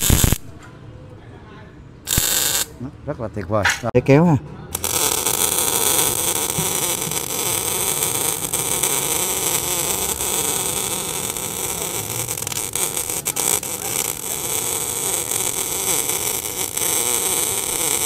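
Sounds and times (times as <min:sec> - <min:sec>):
welding arc hissing and crackling: 0:00.0 - 0:00.4, 0:02.1 - 0:02.7, 0:04.8 - 0:18.0.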